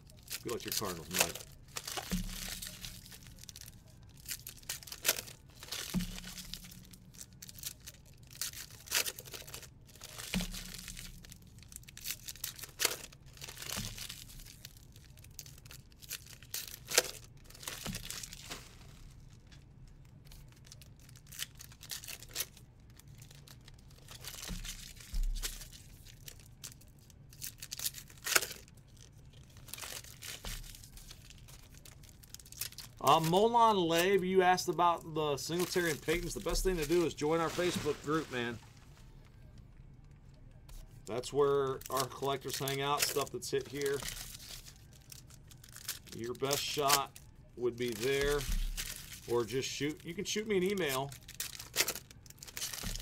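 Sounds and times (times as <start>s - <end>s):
card packs tearing: 0.0s - 19.2s, 20.3s - 28.7s, 29.3s - 39.1s, 41.0s - 53.0s
wrappers crinkling: 0.0s - 53.0s.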